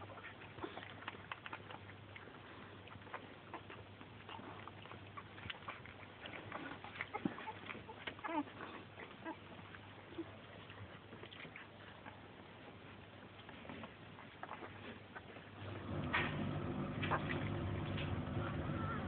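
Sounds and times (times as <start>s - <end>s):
puppies rustling: 0.0s - 19.0s
puppies squeaking: 3.1s - 12.0s.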